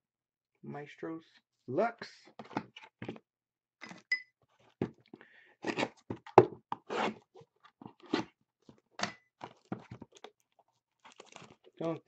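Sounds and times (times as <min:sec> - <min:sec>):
plastic wrap crinkling: 0:09.5 - 0:11.9.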